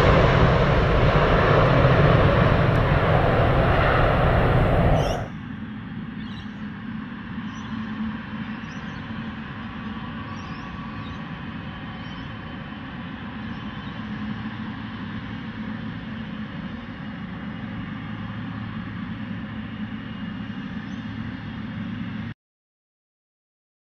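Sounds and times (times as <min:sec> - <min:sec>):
jet engines idling: 0:00.0 - 0:05.3.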